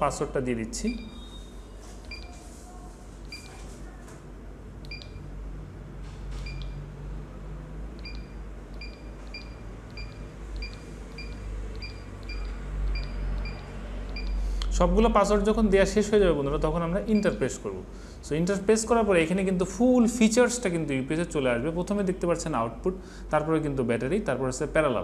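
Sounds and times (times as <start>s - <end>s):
button beeps: 2.0s - 2.4s, 4.8s - 5.3s, 6.4s - 6.8s, 8.0s - 14.4s.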